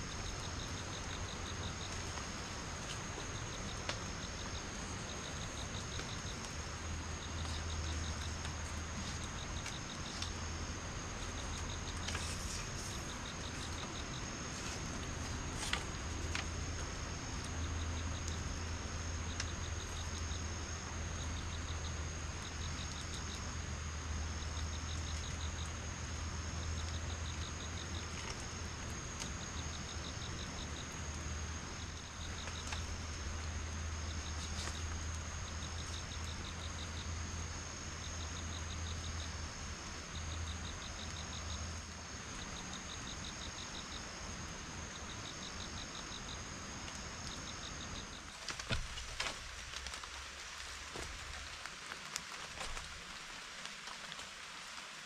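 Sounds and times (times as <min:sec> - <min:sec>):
pulsed insect chirps: 0:00.0 - 0:49.7
background hiss: 0:00.0 - 0:55.0
insects droning: 0:00.0 - 0:55.0.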